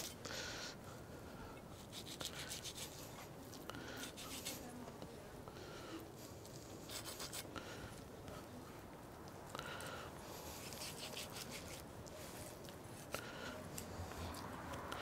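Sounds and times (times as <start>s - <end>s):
knife scraping fat off meat: 1.8s - 3.3s, 4.0s - 4.7s, 6.8s - 7.5s, 10.6s - 11.9s.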